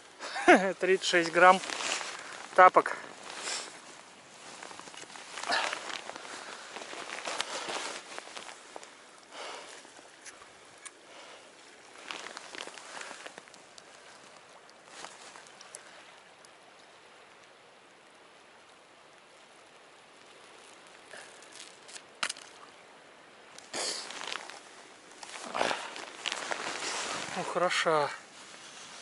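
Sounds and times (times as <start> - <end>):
wind hiss: 0.0 - 29.0
boots crunching in snow: 1.3 - 8.8, 23.9 - 27.6.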